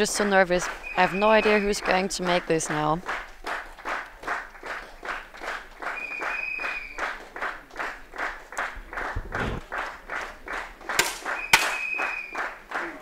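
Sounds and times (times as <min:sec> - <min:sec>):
rhythmic clapping: 0:00.0 - 0:13.0
low thud: 0:09.2 - 0:09.6.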